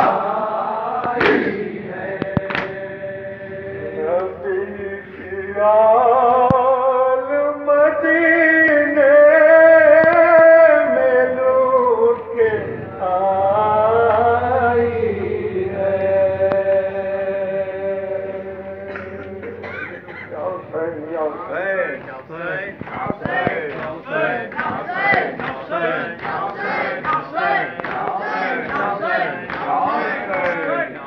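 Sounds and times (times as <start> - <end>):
men chanting a lament: 0.0 - 31.0
sharp slaps: 1.0 - 2.9, 22.8 - 28.9.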